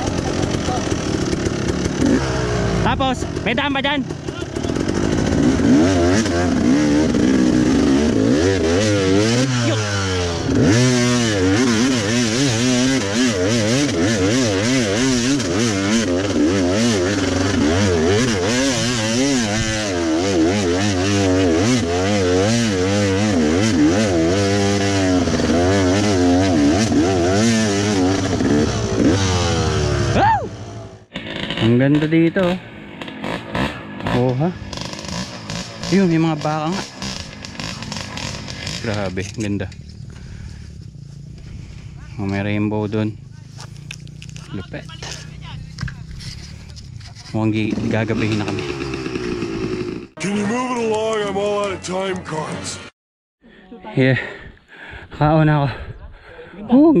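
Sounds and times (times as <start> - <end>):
dirt bike engine revving: 0.0 - 52.9.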